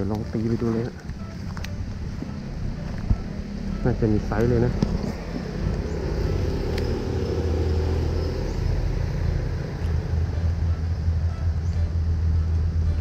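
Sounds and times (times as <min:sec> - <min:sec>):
car engine running: 0:00.0 - 0:13.0
higher hum: 0:00.0 - 0:13.0.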